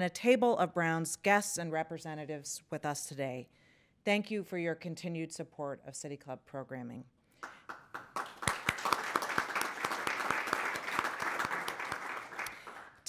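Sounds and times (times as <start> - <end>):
audience applauding: 7.4 - 13.0.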